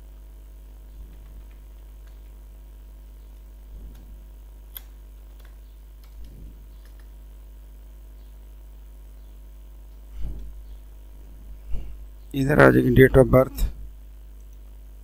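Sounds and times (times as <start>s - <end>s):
low electrical hum: 0.0s - 15.0s
keyboard clicks: 1.0s - 2.4s, 3.8s - 7.2s.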